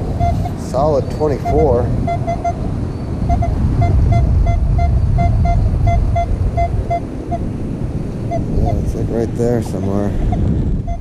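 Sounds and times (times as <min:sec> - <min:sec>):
wind rumble on microphone: 0:00.0 - 0:11.0
metal detector beeps: 0:00.1 - 0:02.6, 0:03.2 - 0:07.4.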